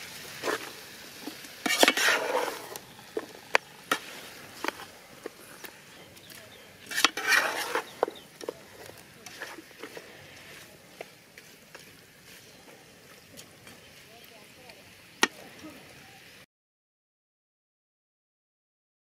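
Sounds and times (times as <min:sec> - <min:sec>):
metal ladle scraping a pot: 0:00.3 - 0:11.1.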